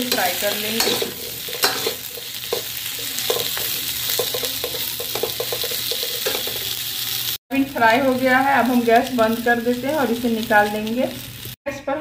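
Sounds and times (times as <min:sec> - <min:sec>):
food sizzling in oil: 0:00.0 - 0:11.6
spatula tapping pot: 0:03.3 - 0:06.6.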